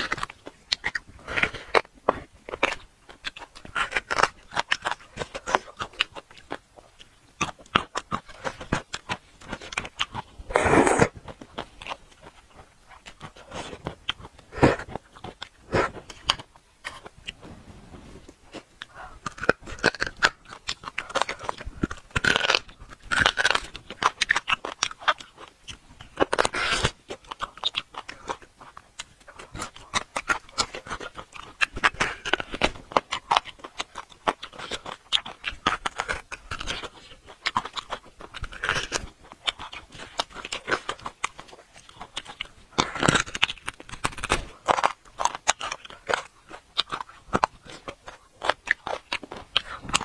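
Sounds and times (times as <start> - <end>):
wet chewing and lip smacks: 0.0 - 17.6, 18.2 - 50.0
slurping marrow from bone: 7.5 - 25.2.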